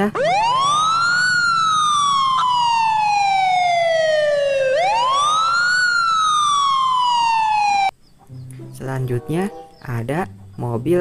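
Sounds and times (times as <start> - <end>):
police siren wailing: 0.0 - 8.0.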